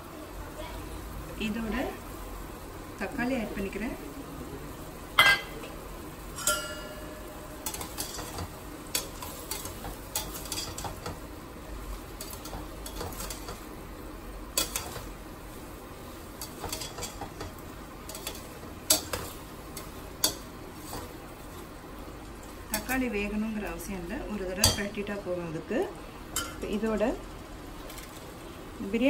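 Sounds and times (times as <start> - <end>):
food sizzling: 0.0 - 29.0
ladle clanging on pot: 6.4 - 11.2.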